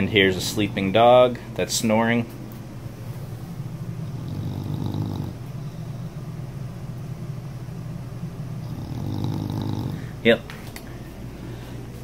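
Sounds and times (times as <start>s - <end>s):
dog snoring: 4.0s - 6.1s, 8.5s - 10.2s.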